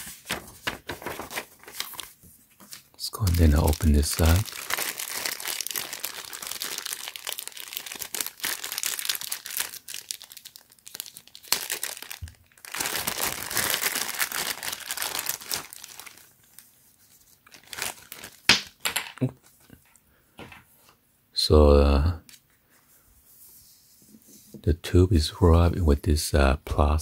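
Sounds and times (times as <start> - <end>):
plastic wrapping crinkling: 0.0 - 18.8.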